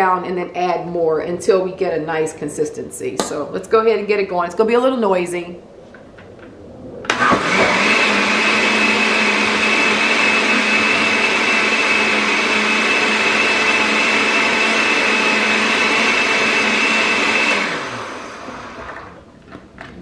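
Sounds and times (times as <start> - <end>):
blender running: 7.1 - 19.2.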